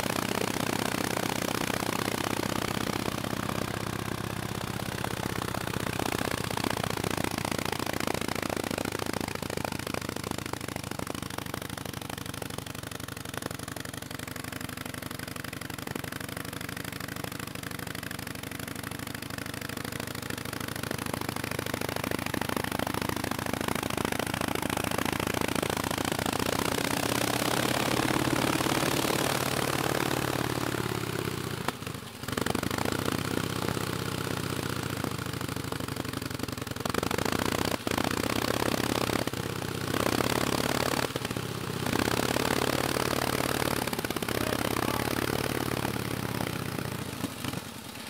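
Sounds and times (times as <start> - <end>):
motorcycle engine idling: 0.0 - 48.0.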